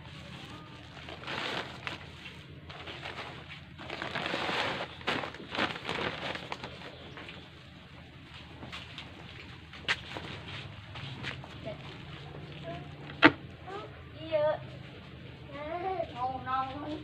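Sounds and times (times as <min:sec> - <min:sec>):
hands scooping potting mix: 0:00.0 - 0:07.4
sharp crackles of plastic bag: 0:00.0 - 0:13.3.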